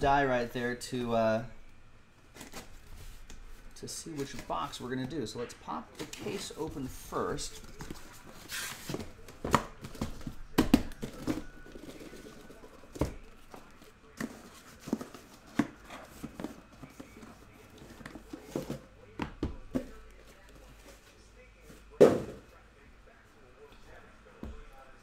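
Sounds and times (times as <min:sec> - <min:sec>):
cardboard rustling: 0:05.9 - 0:18.9
boxes knocking on a table: 0:22.0 - 0:22.5.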